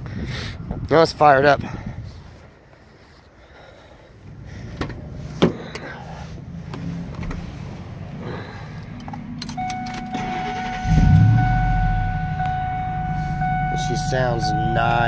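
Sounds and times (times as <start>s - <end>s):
truck engine starting and idling: 4.3s - 15.0s
steady high tone: 9.6s - 15.0s.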